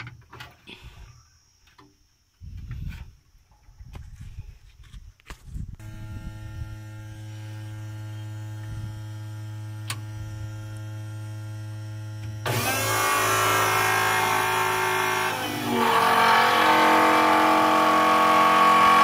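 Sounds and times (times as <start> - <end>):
electric pump humming: 5.8 - 19.0.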